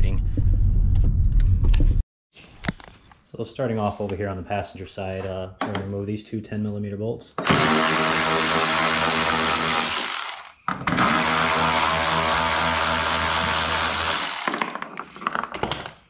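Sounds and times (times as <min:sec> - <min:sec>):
cordless ratchet motor whine: 0:07.4 - 0:14.7.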